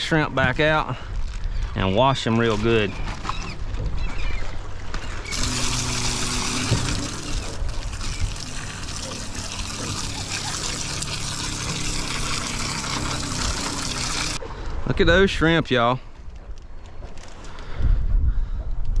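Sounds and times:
hose spraying water: 5.2s - 14.4s.

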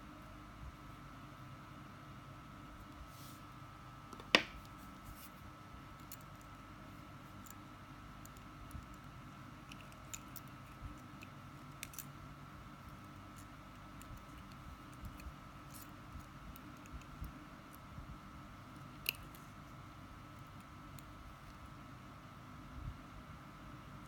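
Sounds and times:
pliers and wire clicking: 8.2s - 12.2s, 18.9s - 19.4s.

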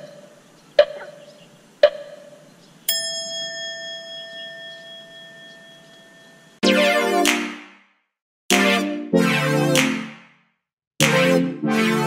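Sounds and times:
bell-like chime: 2.9s - 6.6s
short metallic dings: 2.9s - 6.6s.

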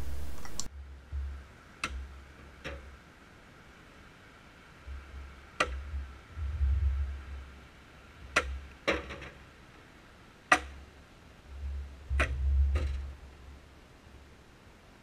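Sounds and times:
low rumble: 5.9s - 7.5s.

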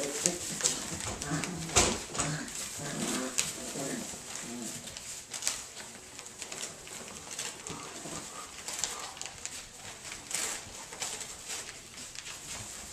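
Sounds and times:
puppies grunting and whimpering: 0.0s - 5.2s
shredded paper rustling: 0.0s - 12.9s.

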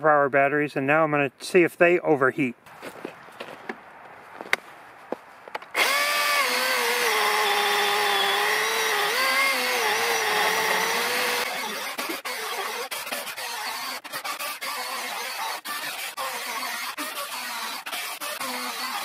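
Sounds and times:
electric chainsaw cutting log: 5.7s - 19.0s.

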